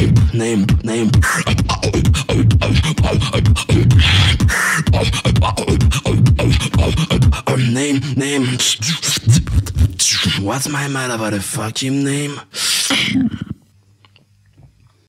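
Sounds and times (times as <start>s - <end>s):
beatboxing into a microphone: 0.0s - 10.7s.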